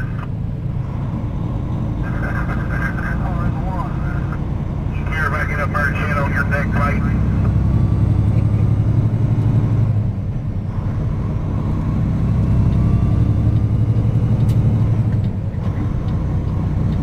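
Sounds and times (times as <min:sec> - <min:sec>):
truck diesel engine running: 0:00.0 - 0:17.0
tyre and road noise: 0:00.0 - 0:17.0.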